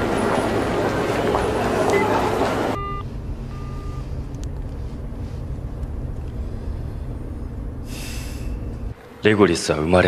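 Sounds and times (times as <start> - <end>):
car rumbling from inside cabin: 0.0 - 9.0
faint short beep: 2.8 - 4.0.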